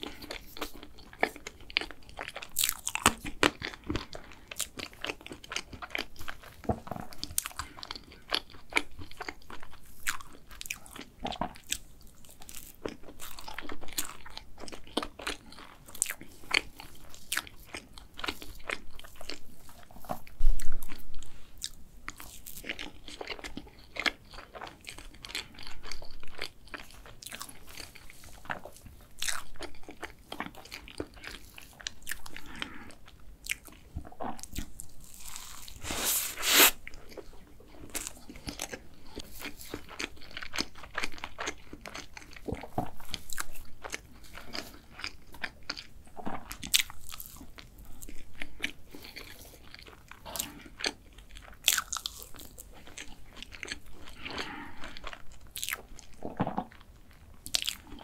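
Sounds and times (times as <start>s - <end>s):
chewing and biting cake: 0.0s - 58.0s
rustling scrape: 35.2s - 36.8s.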